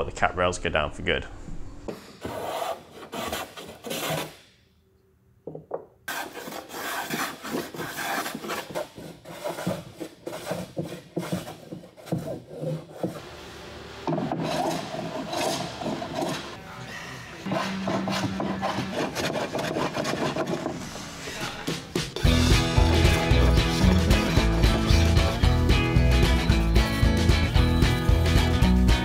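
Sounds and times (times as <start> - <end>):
hand tools rasping wood: 2.2 - 4.4, 6.1 - 13.2, 14.1 - 16.6, 17.4 - 21.0, 22.2 - 26.6.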